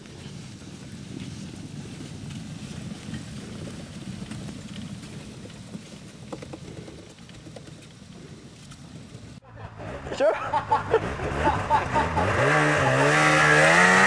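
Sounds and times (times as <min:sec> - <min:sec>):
snowmobile engine running: 0:09.6 - 0:14.0.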